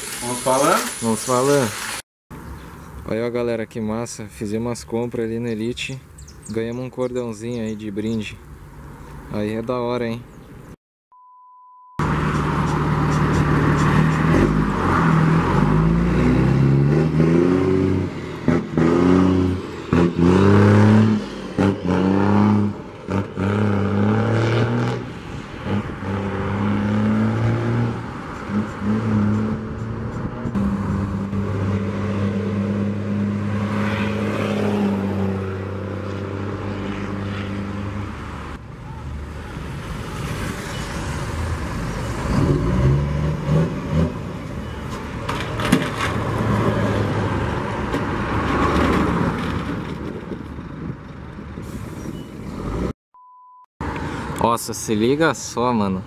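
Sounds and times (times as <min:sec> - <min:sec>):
diesel truck engines revving: 0:12.0 - 0:53.0.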